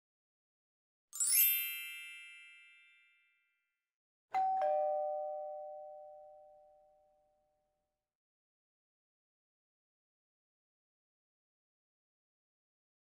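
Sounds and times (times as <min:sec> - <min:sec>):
bright high chime: 0:01.2 - 0:03.5, 0:04.4 - 0:07.1
two-note falling ding-dong: 0:04.4 - 0:07.1.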